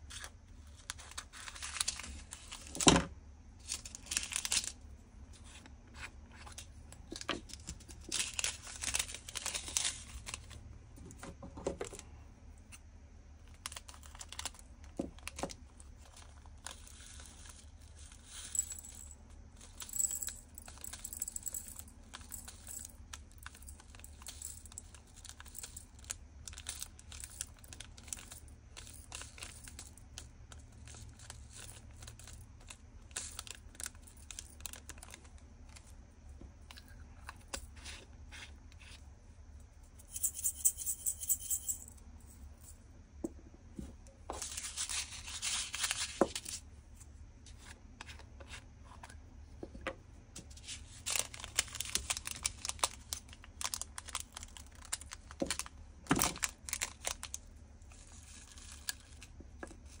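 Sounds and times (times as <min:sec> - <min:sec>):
plastic bags crinkling: 0:07.0 - 0:10.6, 0:50.6 - 0:59.3.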